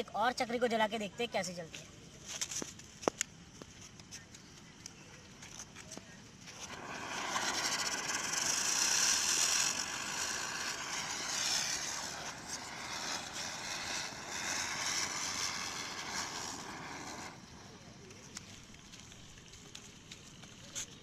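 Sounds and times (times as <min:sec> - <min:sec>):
ground spinner firework hissing: 0:02.4 - 0:21.0.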